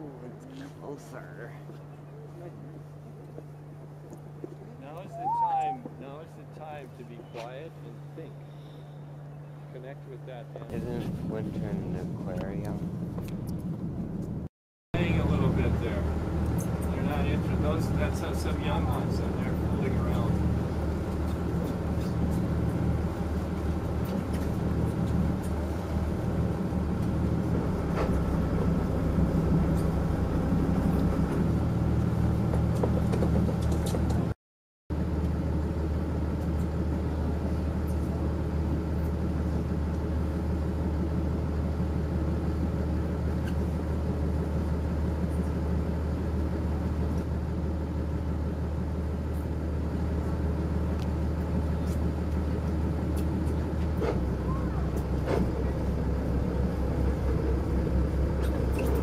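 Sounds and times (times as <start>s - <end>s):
boat engine humming: 0.0s - 34.4s, 35.0s - 59.0s.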